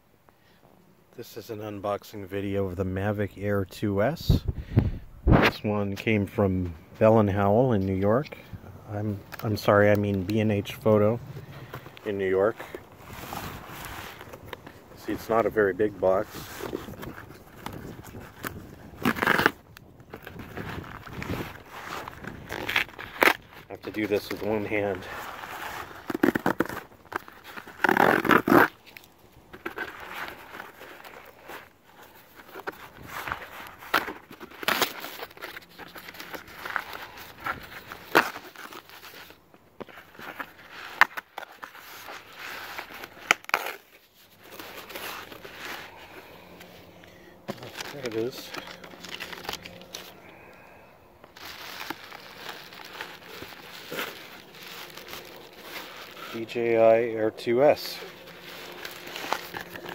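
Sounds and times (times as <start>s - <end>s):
soft scratching: 5.3s - 19.6s, 20.2s - 50.3s, 51.2s - 59.9s
plastic and paper crinkling: 7.0s - 59.9s
cardboard box being torn open: 16.3s - 24.5s, 25.2s - 39.4s, 40.0s - 46.0s, 47.5s - 50.2s, 51.3s - 56.7s, 57.7s - 59.9s
loud cardboard rip: 27.5s - 28.8s.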